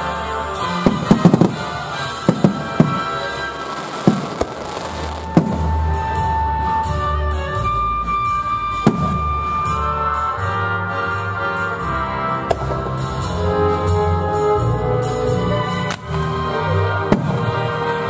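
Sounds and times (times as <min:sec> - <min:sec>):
music with held notes and bass: 0:00.0 - 0:18.0
fireworks shells bursting: 0:00.9 - 0:06.4.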